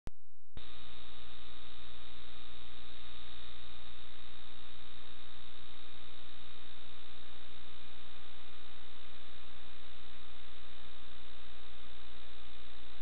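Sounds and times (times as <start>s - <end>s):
electrical hum with hiss: 0.6s - 13.0s.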